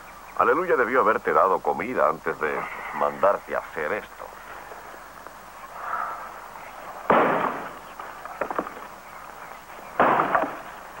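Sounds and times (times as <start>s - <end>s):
axe chopping firewood: 10.0s - 10.7s.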